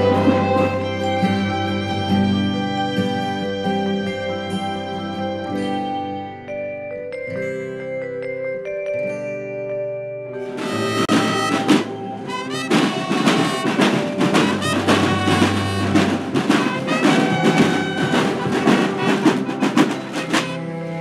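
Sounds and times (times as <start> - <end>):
band music with brass and drums: 0.0 - 1.6, 10.4 - 21.0.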